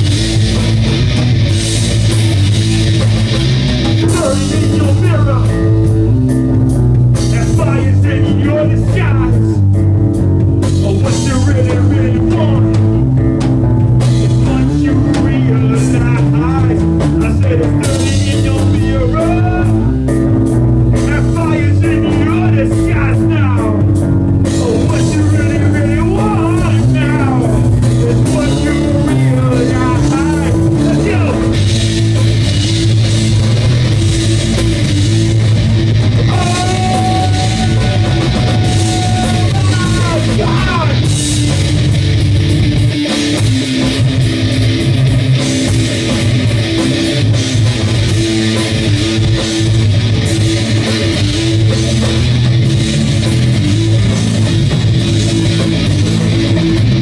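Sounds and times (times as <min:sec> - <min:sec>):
rock band playing: 0:00.0 - 0:57.0
person singing: 0:14.4 - 0:20.0, 0:24.5 - 0:31.6, 0:36.2 - 0:41.1.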